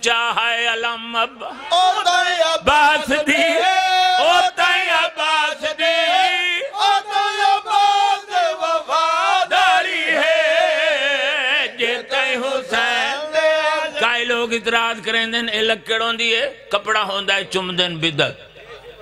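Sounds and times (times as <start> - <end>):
men chanting in chorus: 1.3 - 14.3.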